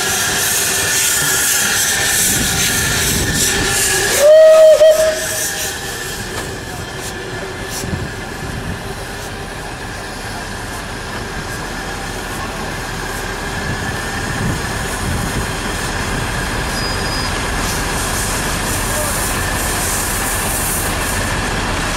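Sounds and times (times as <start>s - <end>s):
steam locomotive whistle: 0.0s - 6.4s, 16.6s - 20.3s
steam locomotive hiss and rumble: 0.0s - 21.9s.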